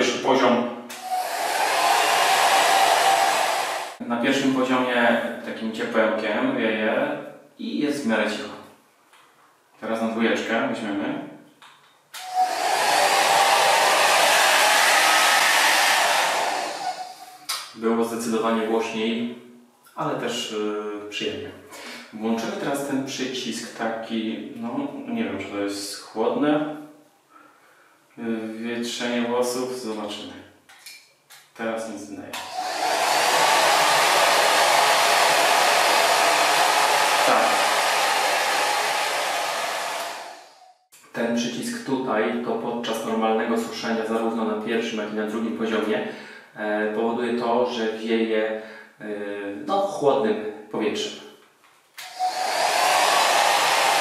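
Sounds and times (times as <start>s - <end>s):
hair dryer blowing air: 0.9s - 4.0s, 12.2s - 17.5s, 32.4s - 40.8s, 52.0s - 54.0s.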